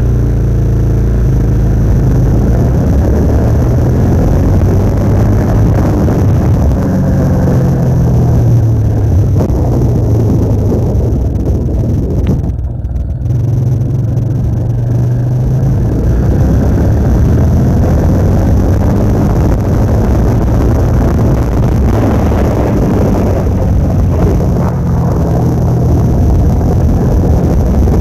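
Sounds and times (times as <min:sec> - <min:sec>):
vehicle engine droning: 0:00.0 - 0:28.0.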